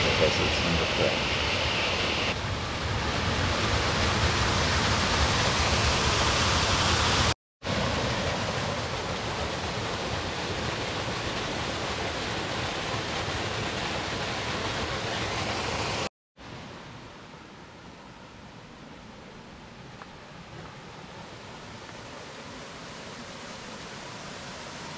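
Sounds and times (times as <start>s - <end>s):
stream rushing down waterfall: 3.1s - 17.5s, 19.4s - 24.9s.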